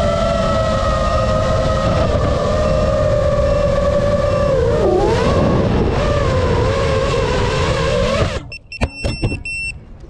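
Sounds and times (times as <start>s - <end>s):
drone motors whining: 0.0s - 8.6s
short high buzzer beeps: 8.5s - 9.8s.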